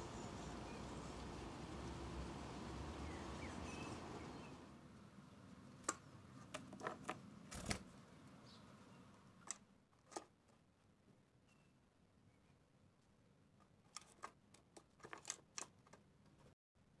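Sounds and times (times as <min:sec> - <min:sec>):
bird chirps: 0:02.8 - 0:04.6.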